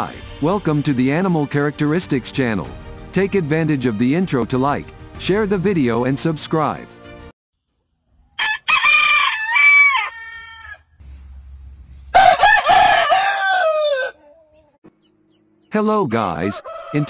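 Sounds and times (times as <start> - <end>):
rooster crowing: 8.4 - 10.9, 12.1 - 14.6, 16.3 - 17.0.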